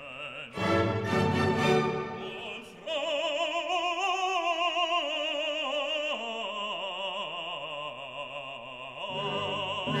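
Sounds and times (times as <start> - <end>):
operatic voice singing: 0.0 - 10.0.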